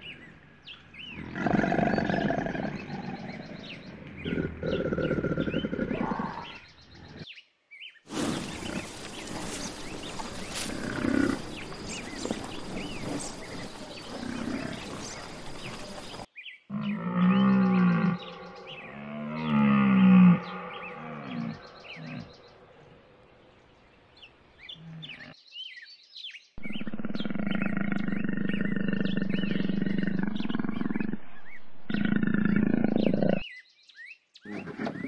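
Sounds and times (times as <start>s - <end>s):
birds chirping: 0.0s - 35.0s
crocodile growling: 1.2s - 6.6s, 8.1s - 22.6s, 26.6s - 33.4s
water buffalo grunting: 8.1s - 22.4s.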